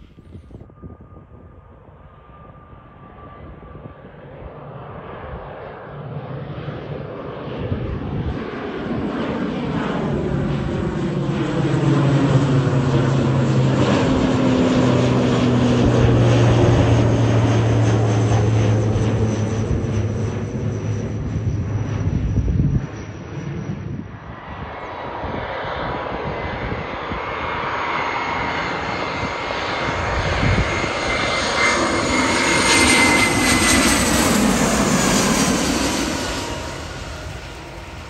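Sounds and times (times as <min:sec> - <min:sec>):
propeller plane drone: 0:00.0 - 0:38.0
high turbine whine: 0:09.7 - 0:38.0.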